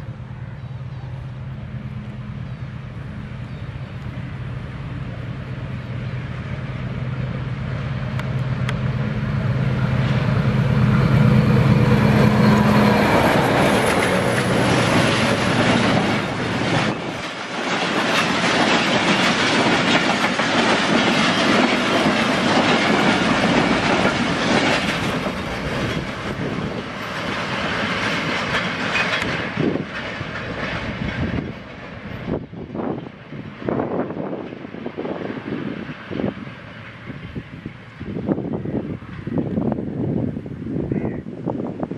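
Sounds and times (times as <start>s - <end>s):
locomotive engine droning: 0.0s - 41.9s
train wheels clattering over rail joints: 11.5s - 33.3s.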